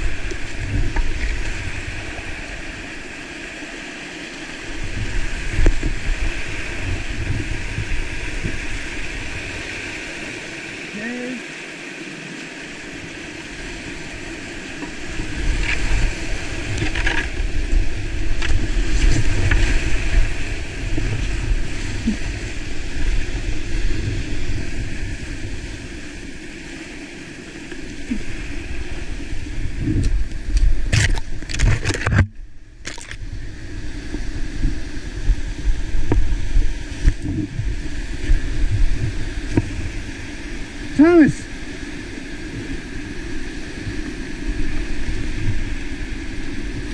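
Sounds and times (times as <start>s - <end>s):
wind buffeting microphone: 0.0s - 3.2s, 4.6s - 10.6s, 12.9s - 46.9s
whitewater rushing and churning: 0.0s - 46.9s
sharp water splashes: 30.8s - 33.2s.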